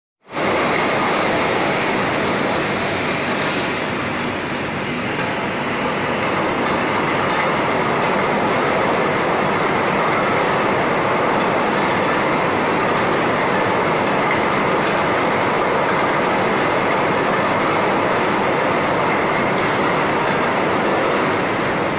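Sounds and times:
conveyor machinery din: 0.3s - 21.9s.

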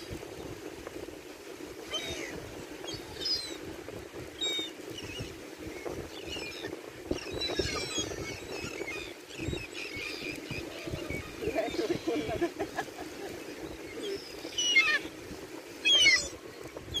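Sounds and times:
gulls calling: 1.8s - 3.7s, 4.3s - 17.0s.

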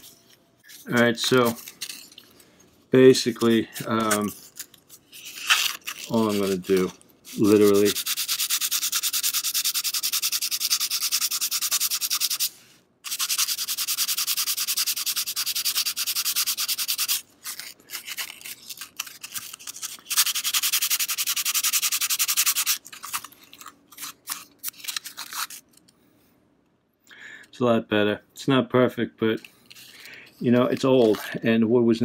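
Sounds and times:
sandpaper scratching on wood: 5.9s - 22.8s.

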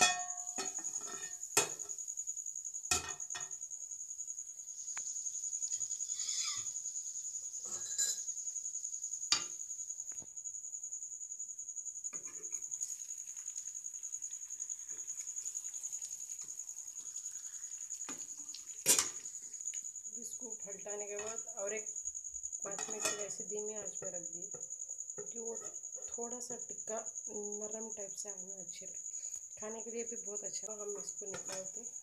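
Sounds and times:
metal spoon scraping a pan: 0.0s - 1.9s, 22.7s - 23.3s.

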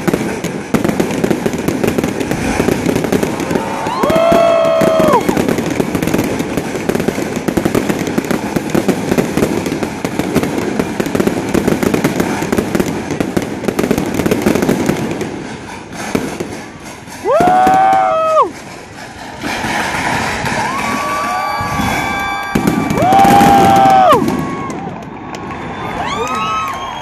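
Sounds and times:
fireworks crackling and popping: 0.0s - 27.0s
person whooping: 3.2s - 5.5s, 17.2s - 18.6s, 20.4s - 24.9s, 25.8s - 27.0s.

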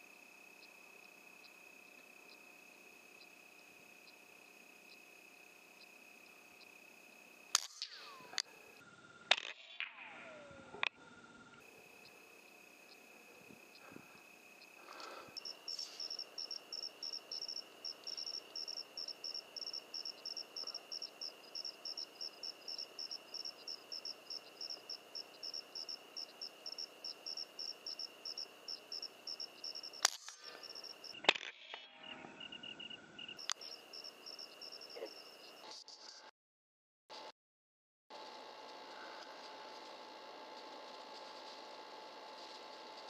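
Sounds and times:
crickets chirping: 0.0s - 9.3s, 10.0s - 35.7s
steady insect trill: 0.0s - 9.3s, 10.0s - 35.7s, 38.2s - 43.0s
sharp clicks: 7.5s - 8.5s, 29.8s - 31.8s.

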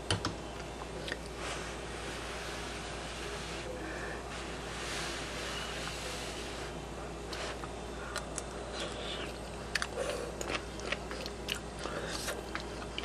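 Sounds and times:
person chewing: 0.8s - 1.4s, 7.4s - 13.0s
steady low hiss: 1.3s - 9.4s.

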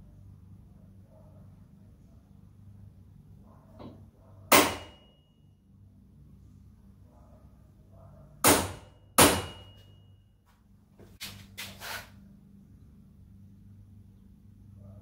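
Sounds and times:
center punch striking metal: 3.8s - 5.2s, 8.4s - 10.0s.

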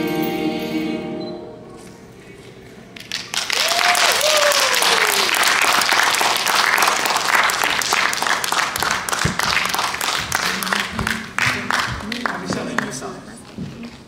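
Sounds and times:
audience applauding: 3.0s - 13.5s.

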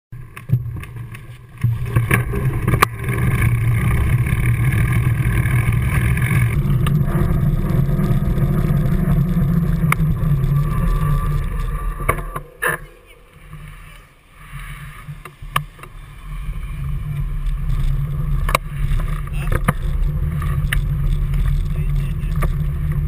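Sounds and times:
camera rumbling along ground: 0.1s - 23.0s.

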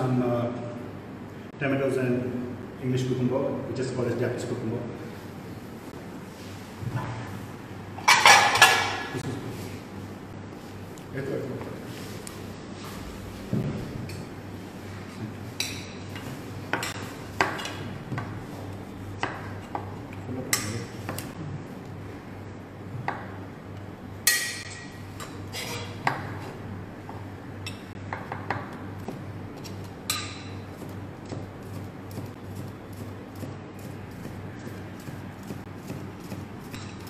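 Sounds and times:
tableware clinking and knocking: 8.0s - 9.2s.

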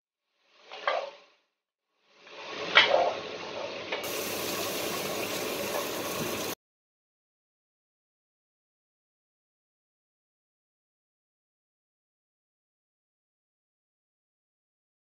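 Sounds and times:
simmering pot hiss: 2.0s - 6.6s.

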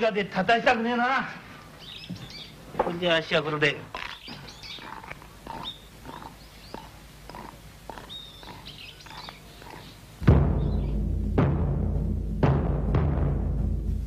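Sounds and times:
birds chirping: 0.0s - 11.0s
loud timpani stroke: 10.2s - 14.0s.

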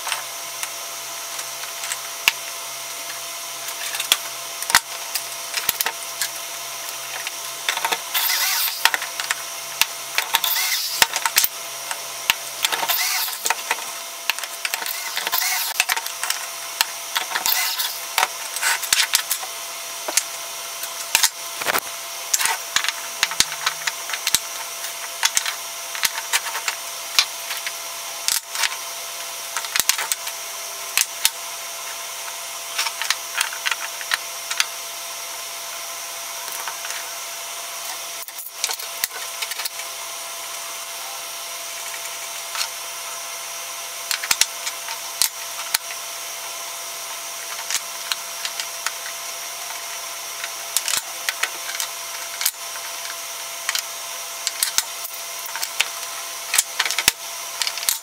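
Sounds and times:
wood and metal tools clacking: 7.7s - 9.1s.

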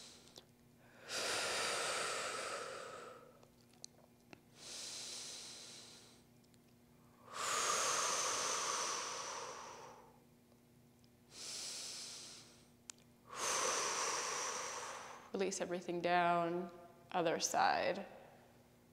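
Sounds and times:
slow deep breathing: 0.0s - 3.4s, 4.6s - 6.3s, 7.1s - 10.2s, 11.3s - 15.4s
thin high whistle in breath: 7.3s - 10.2s.

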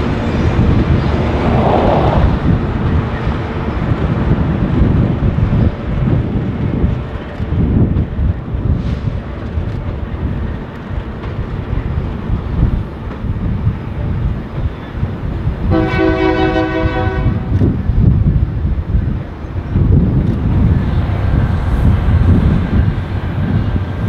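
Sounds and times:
train rumbling by: 0.0s - 24.0s
locomotive air horn chord: 15.7s - 17.6s.

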